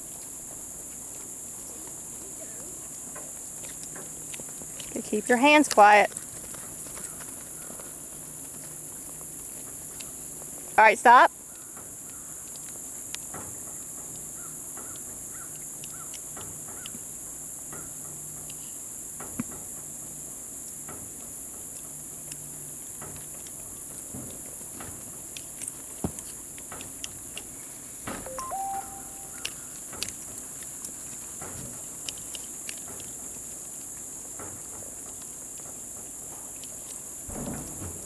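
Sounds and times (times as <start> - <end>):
insect chorus drone: 0.0 - 38.0
short call: 28.3 - 29.5.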